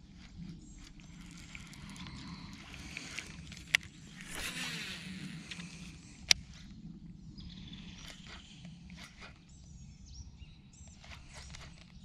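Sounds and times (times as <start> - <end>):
small ticks: 0.0 - 6.7, 10.8 - 12.0
faint bird chirps: 0.0 - 12.0
fishing reel clicking: 0.8 - 6.4.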